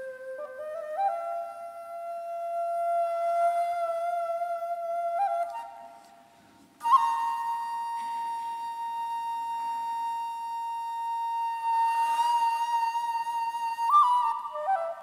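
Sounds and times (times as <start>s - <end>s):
flute long high note: 6.8s - 15.0s.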